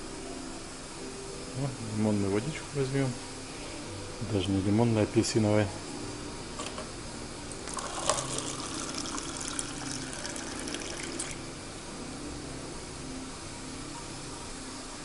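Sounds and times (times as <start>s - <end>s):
water running into a cup: 7.6s - 11.5s.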